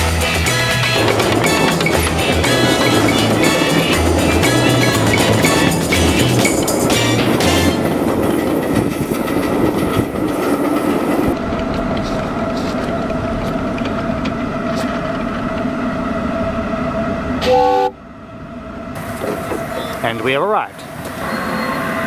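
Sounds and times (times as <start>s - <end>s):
steam train running on track: 0.0s - 22.0s
steam whistle toot: 17.4s - 18.0s.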